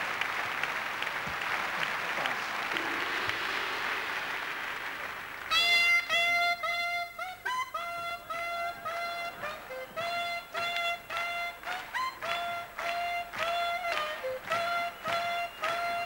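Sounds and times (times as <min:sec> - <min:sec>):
audience applause: 0:00.0 - 0:06.2, 0:11.0 - 0:16.0
solo wind instrument melody: 0:05.5 - 0:16.0.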